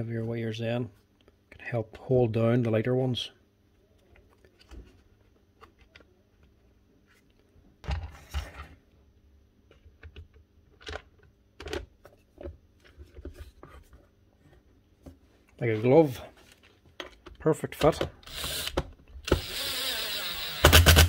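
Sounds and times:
plastic parts clicking and tapping: 9.7 - 13.4.

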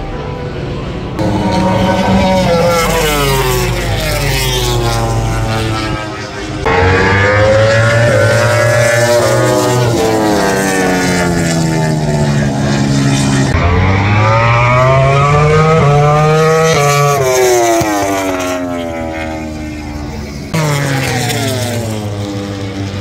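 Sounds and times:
racing motorcycles passing: 1.0 - 23.0.

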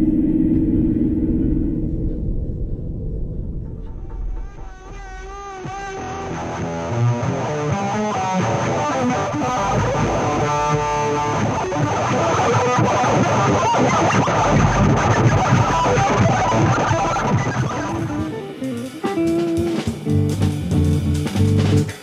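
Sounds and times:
electric guitar instrumental music: 4.5 - 22.0.

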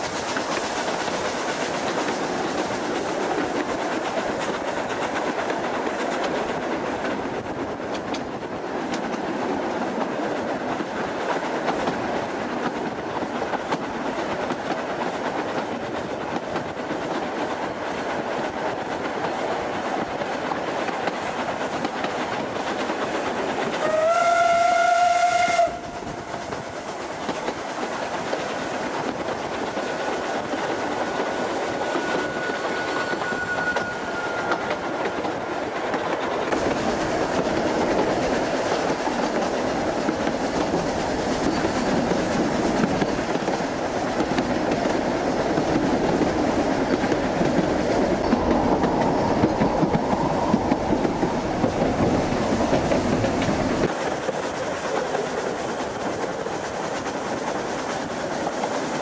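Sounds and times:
train running on rails: 0.0 - 59.0
steam locomotive whistle: 23.8 - 26.5, 31.2 - 35.0.

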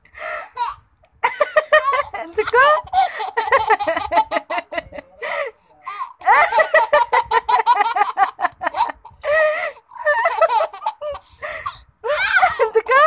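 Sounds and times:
toddler giggling: 1.7 - 5.2, 9.8 - 11.3.

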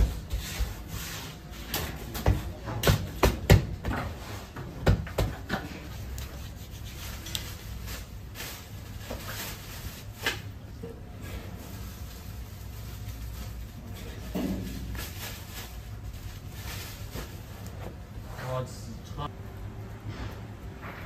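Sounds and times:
hands rubbing and patting dough: 3.6 - 10.6.

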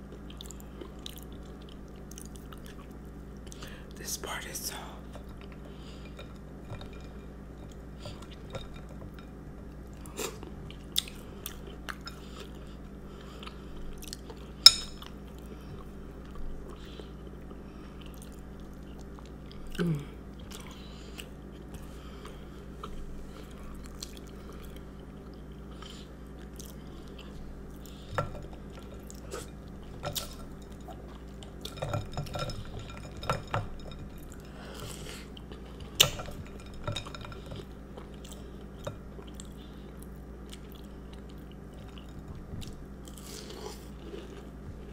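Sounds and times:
quiet chewing: 0.0 - 4.0, 5.0 - 44.9.

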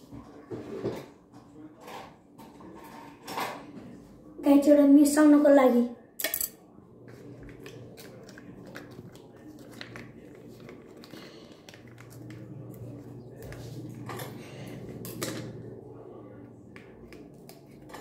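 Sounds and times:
plastic sachet crinkling: 7.4 - 13.1.

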